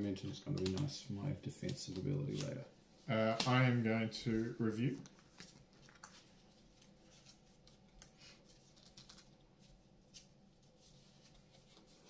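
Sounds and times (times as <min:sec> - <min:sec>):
trading cards clicking and rustling: 0:00.2 - 0:02.6, 0:04.8 - 0:09.4.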